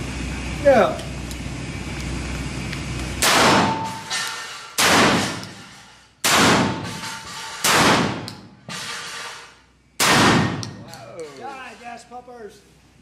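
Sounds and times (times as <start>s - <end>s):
shotgun blasts echoing: 3.2s - 4.1s, 4.8s - 5.4s, 6.2s - 6.9s, 7.6s - 8.3s, 10.0s - 10.7s
quieter sharp bangs: 3.2s - 5.5s, 6.2s - 9.0s, 10.0s - 10.8s.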